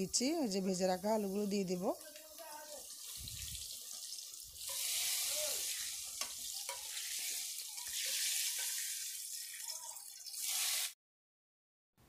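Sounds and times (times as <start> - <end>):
heavy rain hissing: 4.6 - 6.0
metal spatula knocking: 6.1 - 7.0.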